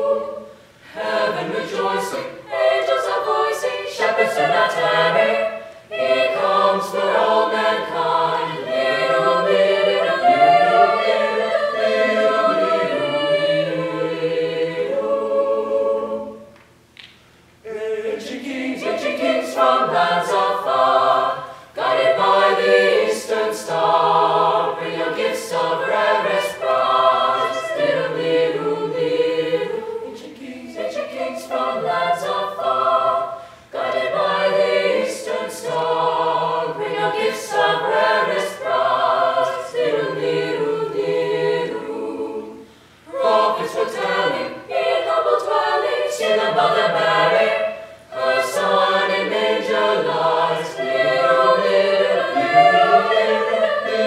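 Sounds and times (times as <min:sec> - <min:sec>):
choir singing a cappella: 0:00.0 - 0:16.6, 0:17.6 - 0:54.0.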